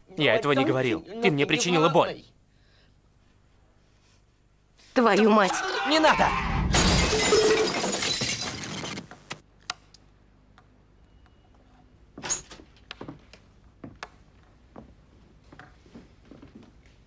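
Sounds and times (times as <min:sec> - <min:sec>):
mirror shattering: 0:06.7 - 0:08.8.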